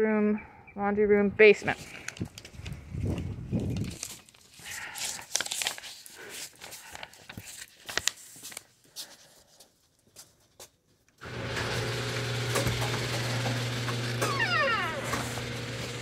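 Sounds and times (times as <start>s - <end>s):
crinkling and rustling handling: 1.6s - 11.2s.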